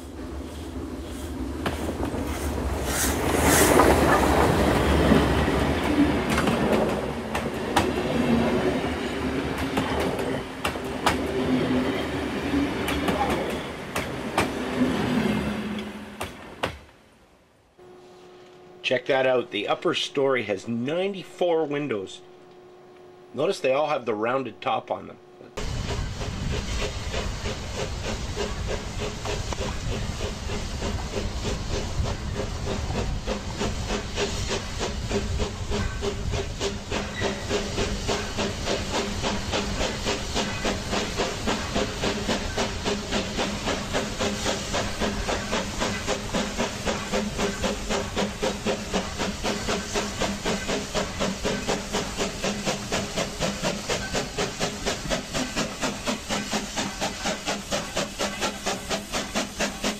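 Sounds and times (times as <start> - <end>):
hissing steam: 0.0 - 16.5, 25.6 - 59.9
locomotive exhaust chuffing: 18.7 - 59.9.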